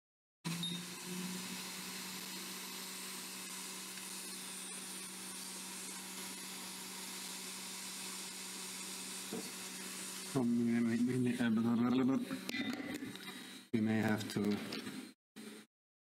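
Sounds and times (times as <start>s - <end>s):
hot air blower hissing: 0.5s - 11.2s.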